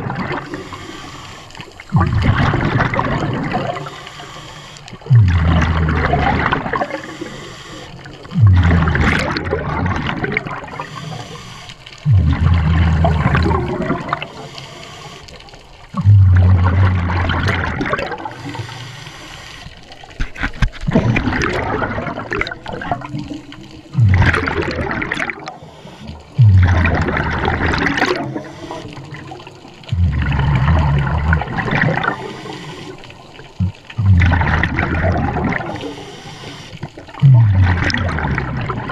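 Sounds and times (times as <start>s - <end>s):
air bubbles gurgling underwater: 0.0s - 14.7s, 15.4s - 18.8s, 19.8s - 38.9s
diver breathing: 0.3s - 2.0s, 3.6s - 6.1s, 6.8s - 8.7s, 10.6s - 16.1s, 18.1s - 20.0s, 25.2s - 26.9s, 27.9s - 34.5s, 35.5s - 37.5s.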